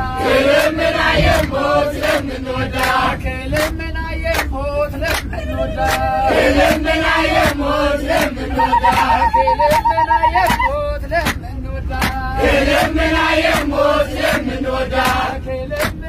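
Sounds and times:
choir singing a hymn: 0.0 - 3.7, 5.4 - 10.0, 12.2 - 16.0
bus rumbling: 0.0 - 16.0
hands clapping: 2.8 - 6.8, 7.4 - 11.4, 12.0 - 12.2, 13.5 - 15.2, 15.8 - 16.0.

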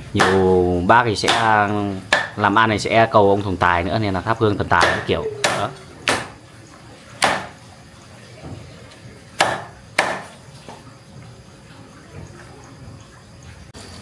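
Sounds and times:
cleaver chopping on a block: 0.2 - 0.4, 1.2 - 2.4, 4.8 - 6.4, 7.2 - 7.6, 9.4 - 10.3.

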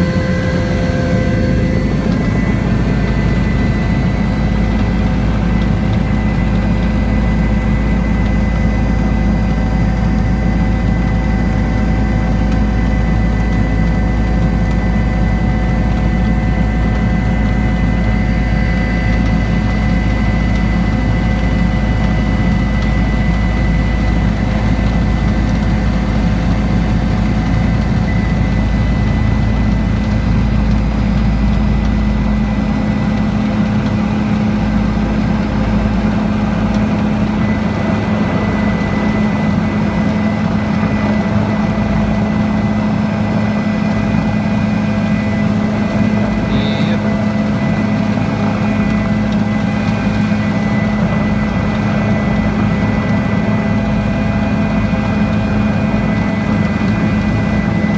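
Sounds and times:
helicopter engine and rotors: 0.0 - 57.9.

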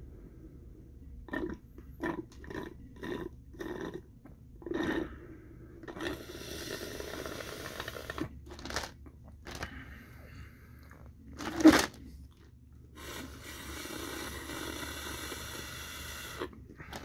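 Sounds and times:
slurping through a straw from a cup: 1.3 - 4.0, 4.6 - 5.2, 5.8 - 8.3, 13.0 - 17.0.

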